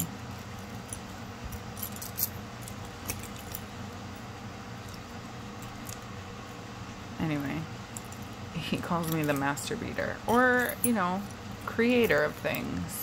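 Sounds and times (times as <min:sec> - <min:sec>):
metal chain necklace clinking: 0:00.0 - 0:04.2, 0:07.4 - 0:12.8
faint low hum: 0:00.0 - 0:13.0.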